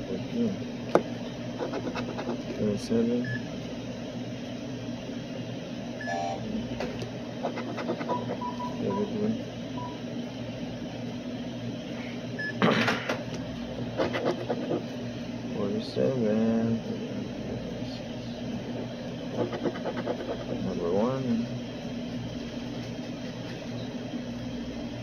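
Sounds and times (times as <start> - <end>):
coin scratching lottery ticket: 1.6 - 2.4, 7.4 - 8.5, 14.0 - 14.9, 19.3 - 20.6
short beeps: 6.0 - 6.4.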